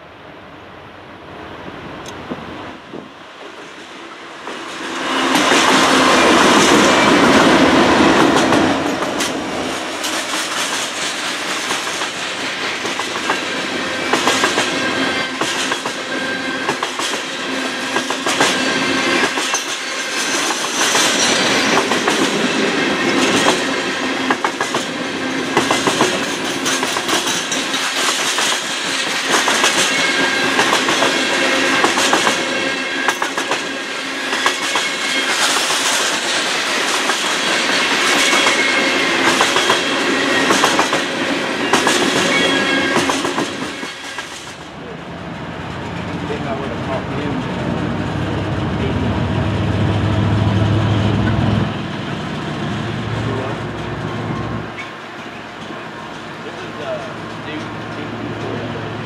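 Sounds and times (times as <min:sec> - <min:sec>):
train wheels rumbling on rail: 0:01.7 - 0:59.0
high wheel squeals: 0:41.7 - 0:44.2.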